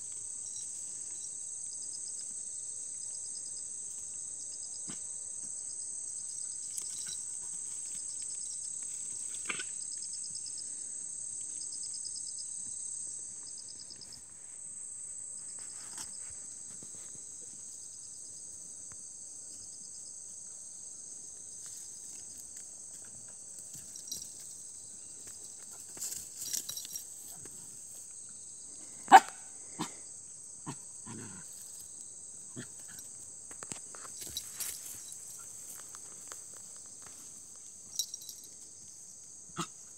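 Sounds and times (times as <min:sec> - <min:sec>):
crickets and insects chirring: 0:00.0 - 0:39.9
faint rustling and scuffing: 0:15.4 - 0:17.8, 0:21.5 - 0:28.2, 0:33.0 - 0:38.8
dog bark: 0:29.1 - 0:30.0.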